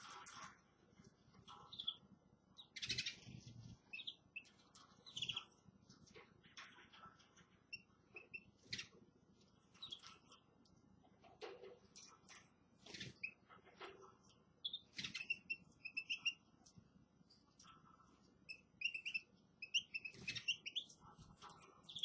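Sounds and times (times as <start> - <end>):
small birds chirping: 1.2 - 10.8, 11.9 - 22.0.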